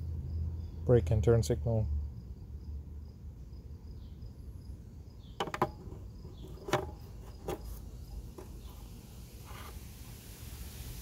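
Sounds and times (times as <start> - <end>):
crickets chirping: 0.0 - 11.0
hard plastic clicks and knocks: 5.4 - 7.7.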